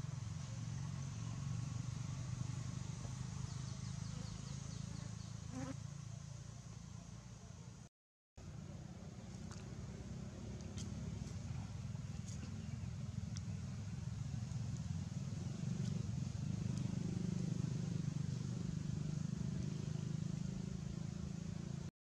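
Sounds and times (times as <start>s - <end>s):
distant engine rumble: 0.0s - 21.9s
faint light ticks: 13.3s - 13.6s.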